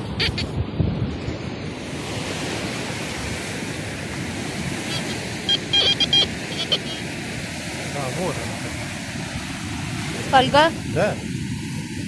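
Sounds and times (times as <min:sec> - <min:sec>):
surf: 0:00.0 - 0:12.0
wind: 0:00.0 - 0:12.0
metal detector beeps: 0:00.2 - 0:00.5, 0:04.7 - 0:07.1.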